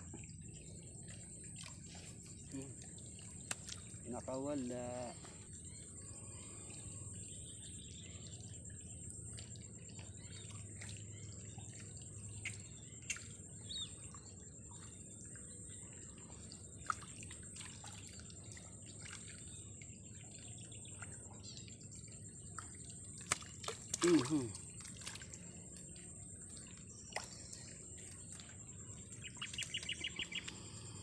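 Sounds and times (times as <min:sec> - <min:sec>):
faint bird chirps: 0:00.0 - 0:31.0
small ticks: 0:01.1 - 0:04.0, 0:11.6 - 0:15.3, 0:20.4 - 0:31.0
fish splashing at surface: 0:23.2 - 0:25.3.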